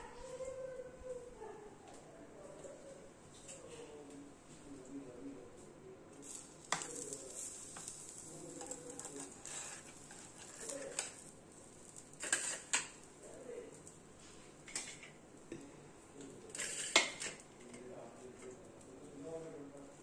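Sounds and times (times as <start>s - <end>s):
pizza cutter scraping grill plates: 6.3s - 11.2s, 12.2s - 13.0s, 16.5s - 17.4s.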